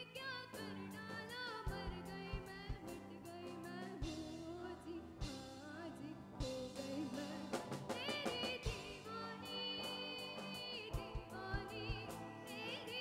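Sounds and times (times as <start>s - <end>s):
live rock band playing: 0.0s - 13.0s
drum hits: 6.4s - 12.4s.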